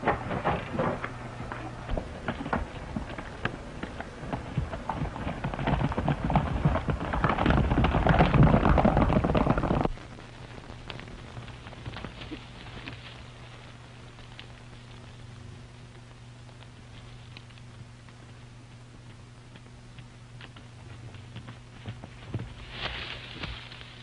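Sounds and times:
galloping horse hoofbeats: 0.0s - 10.0s, 18.9s - 23.7s
film soundtrack hum and hiss: 0.0s - 24.0s.

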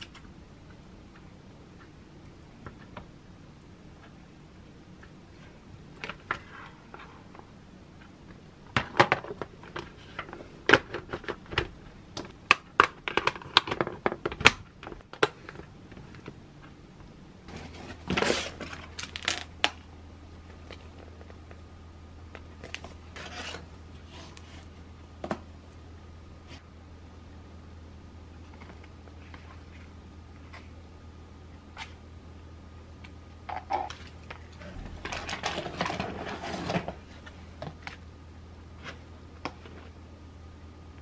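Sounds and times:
plastic food pouches rustling: 17.5s - 19.8s, 34.9s - 37.4s
plastic lunchbox clattering: 34.8s - 37.0s.

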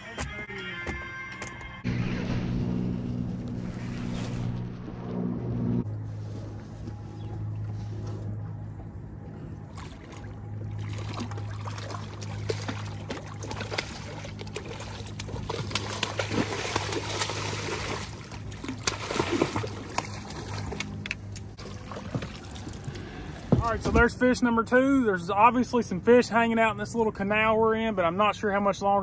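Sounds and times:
steady low hum: 1.8s - 28.2s
fish splashing in water: 9.7s - 21.0s, 21.6s - 23.5s.

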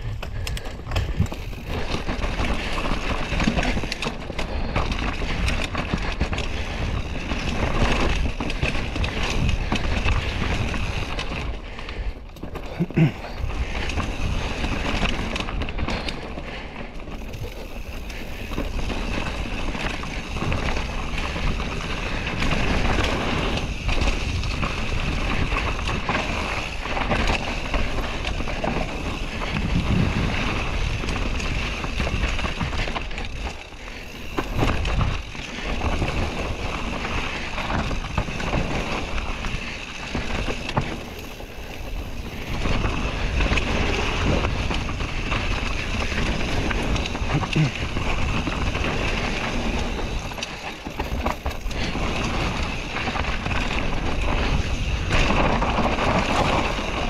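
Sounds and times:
tyre and trail noise: 0.0s - 57.0s
wind rushing over microphone: 28.6s - 33.4s.

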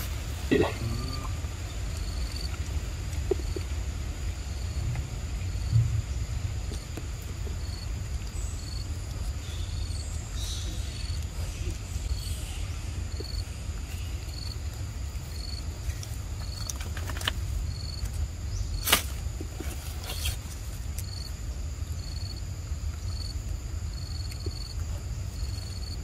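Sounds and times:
low rumble: 0.0s - 16.5s
insect chirping: 0.0s - 26.0s.

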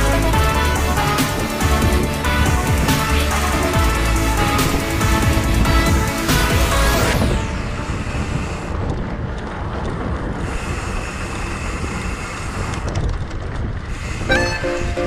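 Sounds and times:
background music: 0.0s - 9.0s, 14.3s - 15.0s
wind rushing over microphone: 0.2s - 15.0s.

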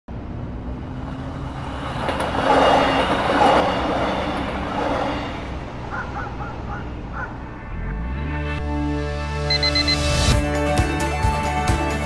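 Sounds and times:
low hum of city noise: 0.1s - 8.5s
vehicle passing: 0.1s - 9.1s.

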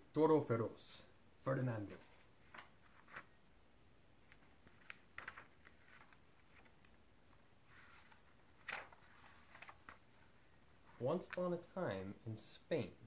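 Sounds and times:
paper pages being turned: 1.9s - 3.4s, 4.2s - 11.7s.

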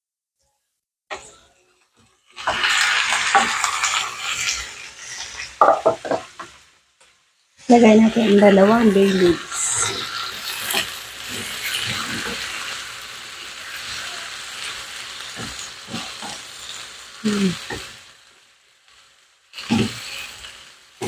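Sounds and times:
squid sizzling in hot oil: 1.1s - 21.0s
spatula knocking and scraping pan: 5.6s - 6.6s.

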